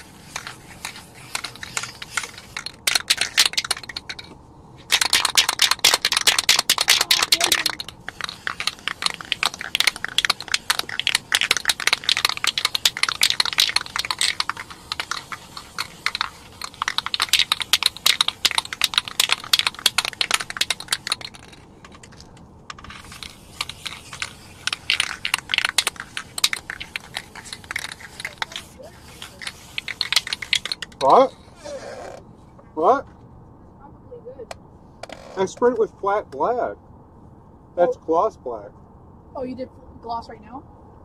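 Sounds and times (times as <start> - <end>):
spray can ball rattling: 0.0 - 31.5.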